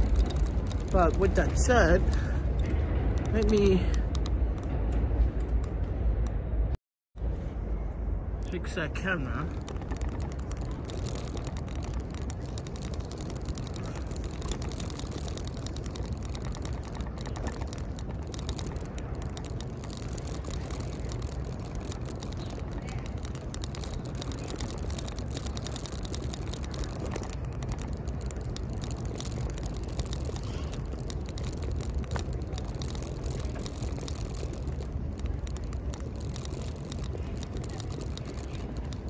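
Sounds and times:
faint clicks and ticks: 0:00.0 - 0:06.4, 0:08.4 - 0:39.0
low city street rumble: 0:00.0 - 0:39.0.

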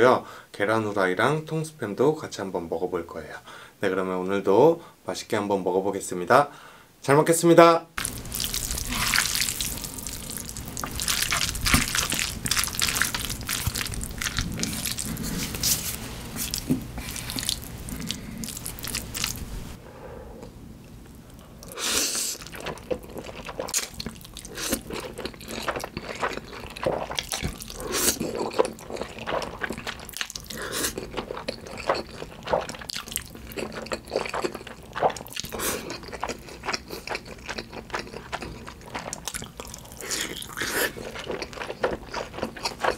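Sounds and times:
noodles slurped: 0:08.0 - 0:19.4
wet chewing and mouth smacks: 0:08.0 - 0:19.5, 0:21.1 - 0:42.9.

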